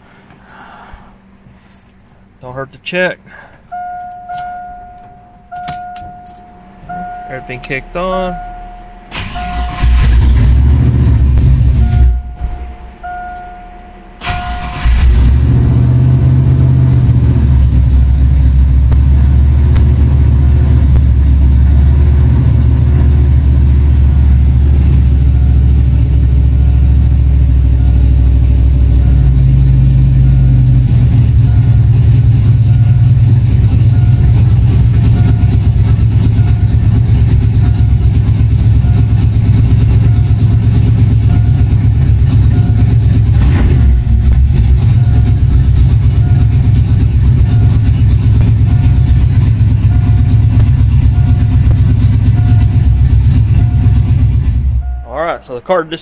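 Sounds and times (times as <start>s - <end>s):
car engine starting and idling: 0.0s - 56.0s
short electronic tones: 3.7s - 10.0s, 11.8s - 14.5s.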